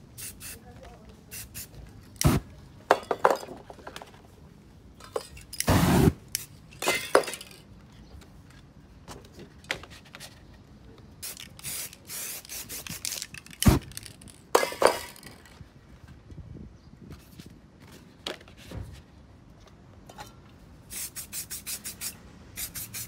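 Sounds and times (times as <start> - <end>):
spray paint cans hissing: 0.0 - 0.6, 1.3 - 2.4, 5.5 - 7.5, 11.2 - 15.3, 20.9 - 23.0
metal cans clinking: 6.7 - 7.6, 13.1 - 15.5.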